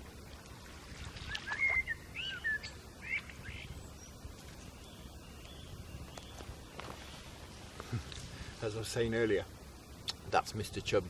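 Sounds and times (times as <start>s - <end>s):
small bird chirping: 1.2s - 7.7s.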